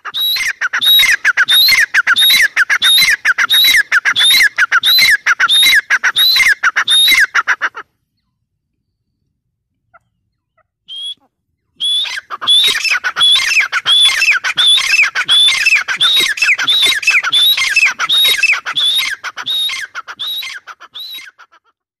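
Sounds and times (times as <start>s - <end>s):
francolin calling shrill notes: 10.9s - 21.4s.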